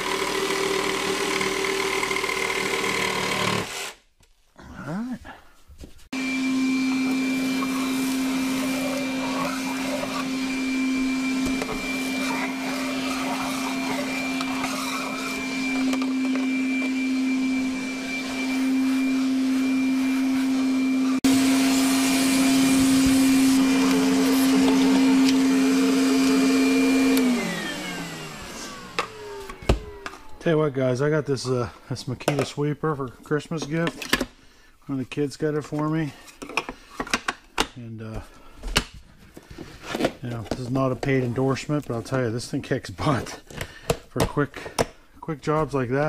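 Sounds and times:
vacuum cleaner humming: 0.0s - 3.9s, 6.1s - 30.7s
vacuum motor winding down: 0.0s - 4.0s, 6.2s - 30.4s.

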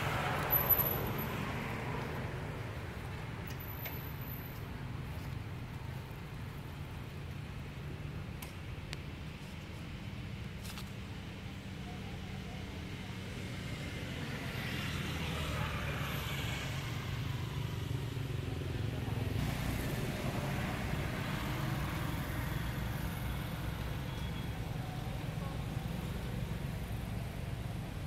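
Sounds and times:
vehicle engine rumbling: 0.0s - 28.0s.

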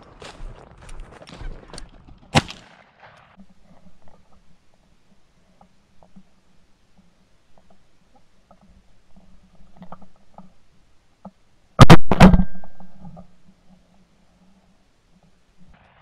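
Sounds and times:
shotgun shots: 11.8s - 12.7s.

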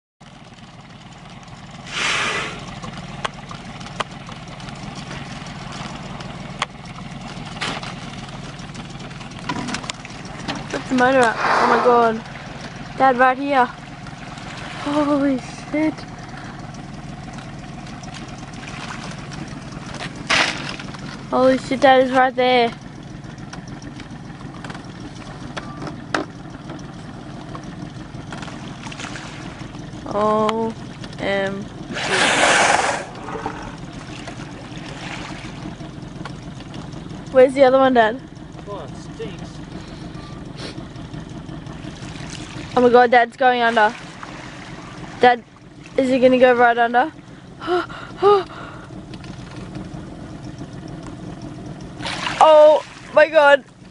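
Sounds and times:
outboard motor idling: 0.2s - 53.9s
loud rushing hiss: 11.3s - 12.0s.

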